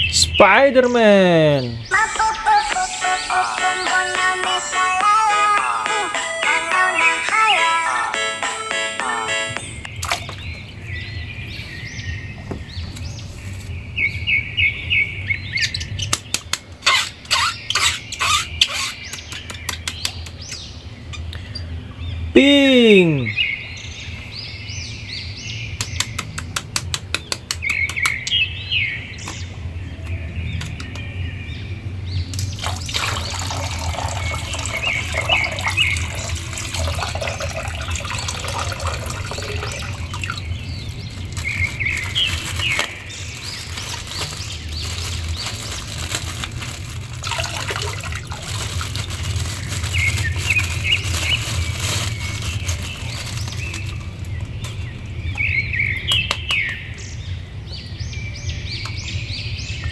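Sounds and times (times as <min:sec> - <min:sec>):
water splashing in a plastic basin: 0:09.9 - 0:10.6, 0:32.4 - 0:54.4.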